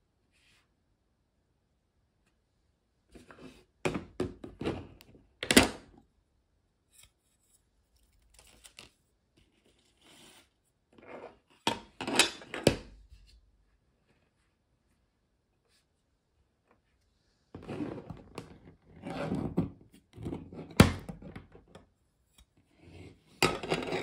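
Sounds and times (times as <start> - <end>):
plastic sliding and scraping: 3.1 - 5.6, 6.9 - 12.6, 16.8 - 21.5, 22.6 - 24.0.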